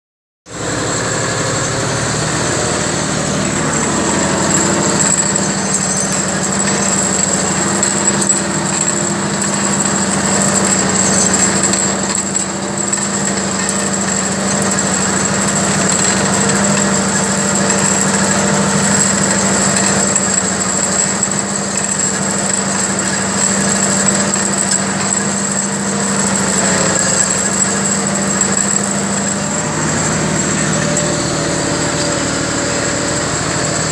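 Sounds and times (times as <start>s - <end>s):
tractor diesel engine under load: 0.4s - 33.9s
steady high whine: 0.5s - 13.2s, 24.2s - 33.9s.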